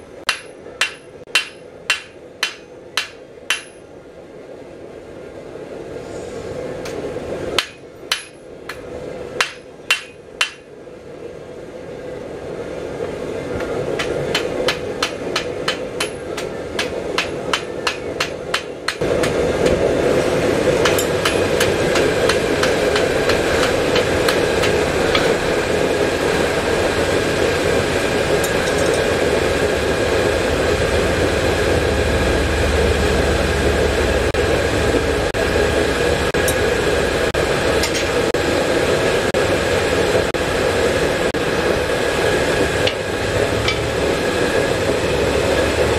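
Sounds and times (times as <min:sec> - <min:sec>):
loud steady rushing noise: 0:00.0 - 0:45.9
hammer striking hot steel on anvil: 0:00.2 - 0:03.9, 0:06.8 - 0:10.8, 0:13.6 - 0:19.9, 0:20.6 - 0:29.4, 0:36.3 - 0:36.7, 0:37.4 - 0:38.4, 0:42.8 - 0:44.0.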